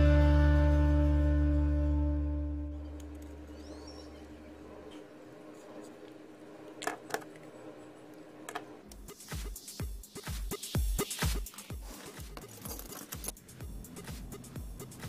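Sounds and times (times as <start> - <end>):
background music: 0.0 - 3.5, 9.0 - 15.0
regular beat: 8.9 - 15.0.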